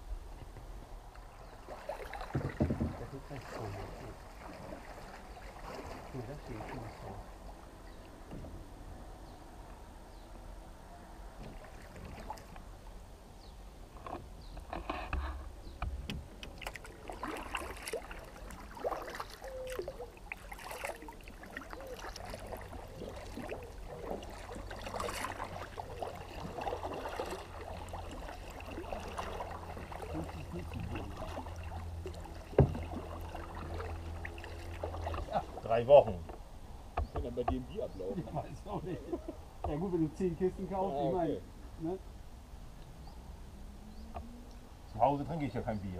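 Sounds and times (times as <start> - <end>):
paddles splashing in water: 1.1 - 8.3, 11.4 - 12.8, 16.3 - 40.1.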